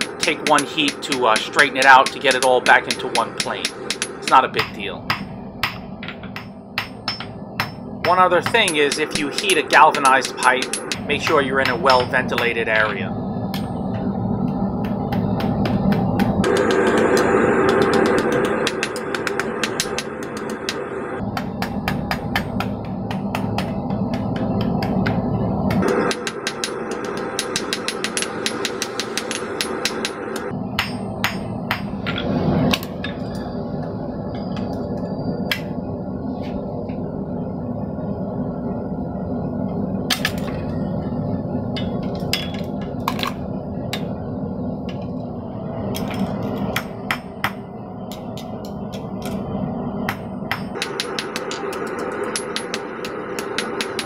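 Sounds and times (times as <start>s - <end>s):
hammer striking steel on anvil: 0.0s - 13.8s, 15.1s - 20.8s, 25.8s - 33.2s, 41.8s - 42.7s, 50.1s - 54.0s.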